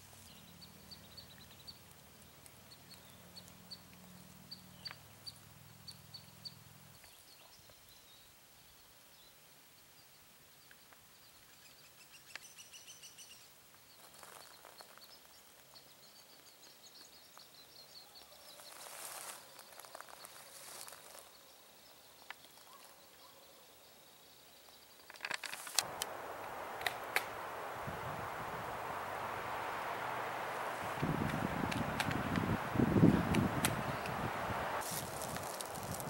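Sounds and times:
small birds chirping: 0.0 - 36.0
footsteps on pine needles: 18.6 - 21.3, 25.5 - 36.0
sharp clicks: 25.2 - 27.6, 31.0 - 32.5, 33.2 - 34.8
wind noise on microphone: 25.8 - 36.0.

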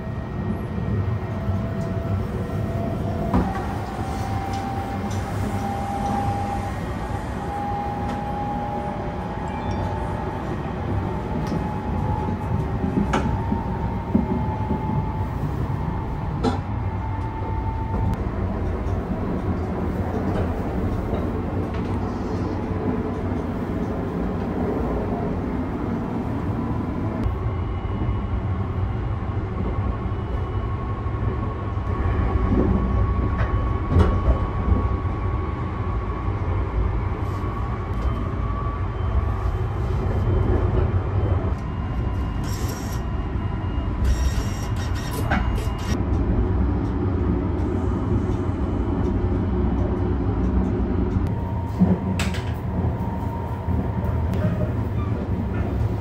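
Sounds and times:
train running low rumble: 0.0 - 56.0.

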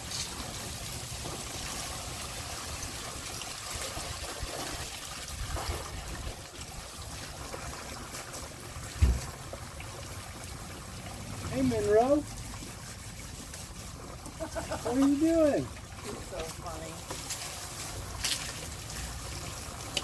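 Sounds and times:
water trickling and splashing: 0.0 - 20.0
low thump: 9.0 - 9.4.

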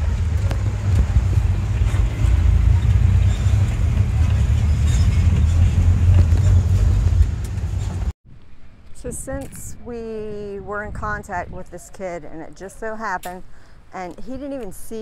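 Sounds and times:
car engine rumble: 0.0 - 8.1
road noise: 0.0 - 11.7
wind noise: 0.0 - 13.9.

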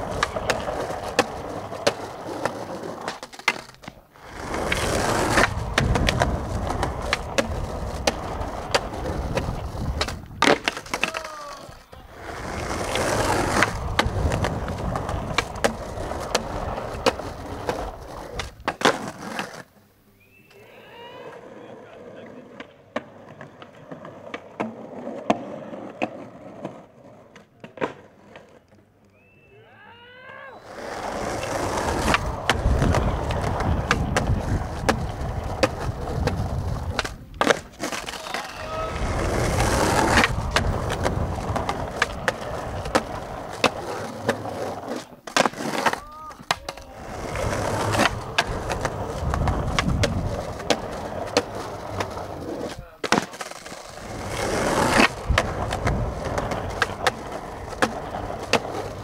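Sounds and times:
skateboard clacks: 0.0 - 19.7, 21.3 - 29.2, 30.7 - 59.0
skateboard wheels rolling on concrete: 0.0 - 59.0.

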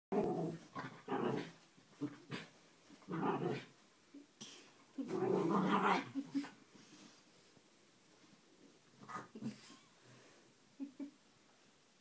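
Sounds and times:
small dog growling: 0.1 - 2.5, 3.1 - 3.7, 5.0 - 6.5.

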